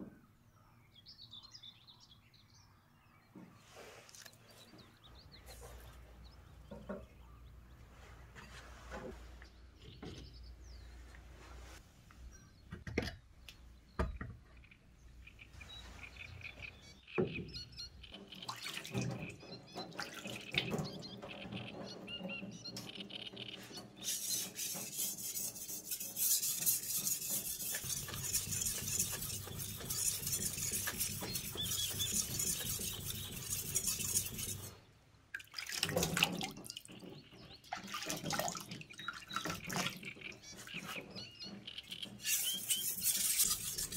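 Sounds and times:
blade scraping on wet whetstone: 24.0 - 34.8, 42.2 - 43.9
water splashing: 35.3 - 37.1, 37.7 - 40.9.

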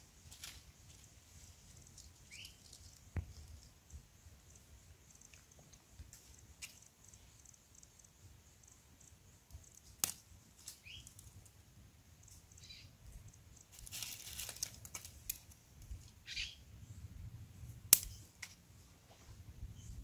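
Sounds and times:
dry leaves rustling: 0.2 - 3.7, 13.7 - 16.1
sharp snap: 17.9 - 18.5.

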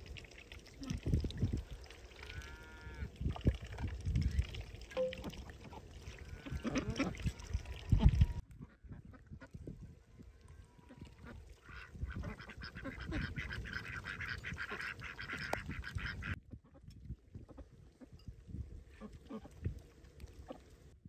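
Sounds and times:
ducks quacking: 5.7 - 9.5, 10.9 - 16.8.

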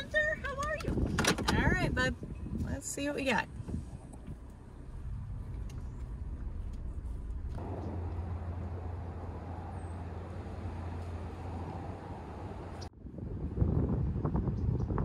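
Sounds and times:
tyre and road noise: 0.0 - 14.9
suv engine low hum: 3.5 - 12.9.

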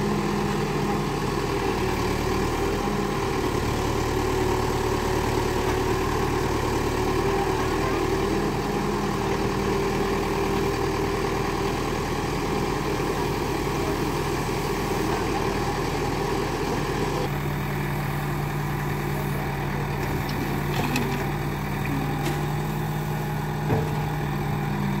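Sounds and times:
backhoe digging soil: 0.0 - 25.0
diesel engines running: 0.0 - 25.0
thump: 23.6 - 24.1.

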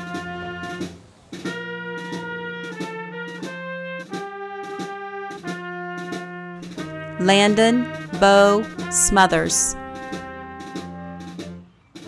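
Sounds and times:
jazz horns: 1.5 - 7.2
drum kit beat: 7.2 - 9.8.

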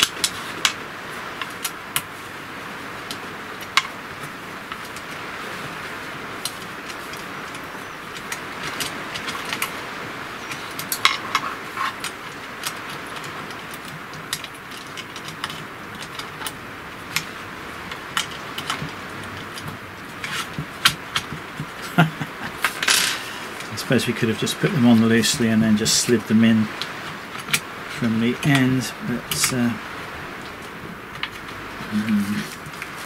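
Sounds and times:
steady background hiss: 0.0 - 33.0.

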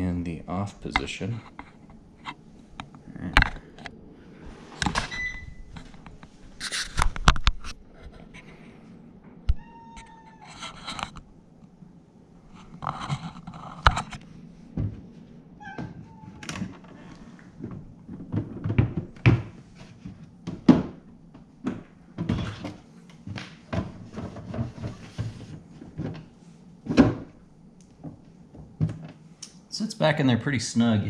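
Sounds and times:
plastic knocks and scrapes: 15.8 - 27.3.

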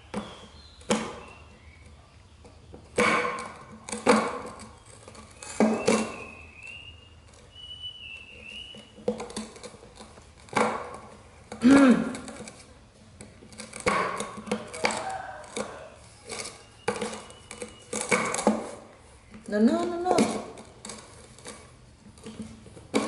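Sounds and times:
knocks and scrapes on a tin: 2.8 - 6.4, 8.7 - 19.0, 19.6 - 23.0.

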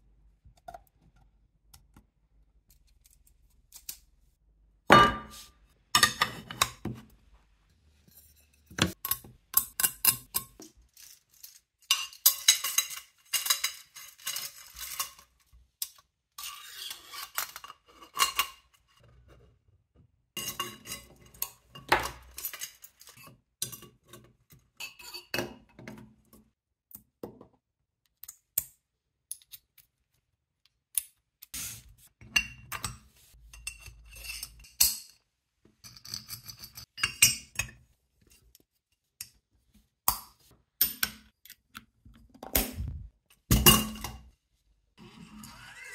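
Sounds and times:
metal parts clinking: 9.0 - 15.3.

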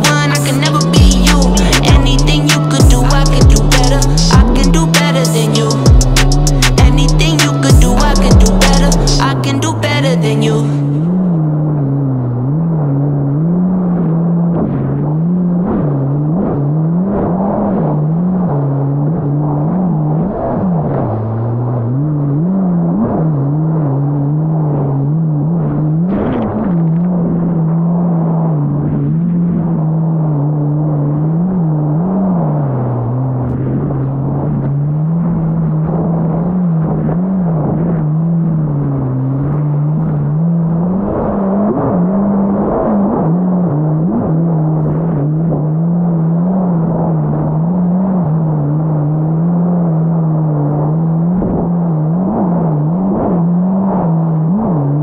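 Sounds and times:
jet ski engine running: 0.0 - 55.0.

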